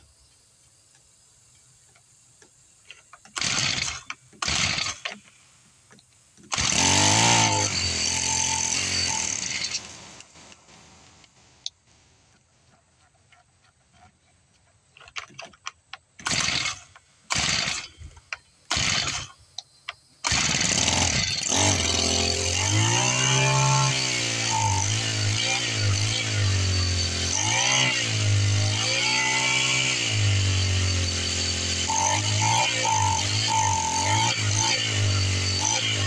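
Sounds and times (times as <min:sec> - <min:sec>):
string trimmer engine running: 0:06.4 - 0:10.7, 0:20.2 - 0:36.0.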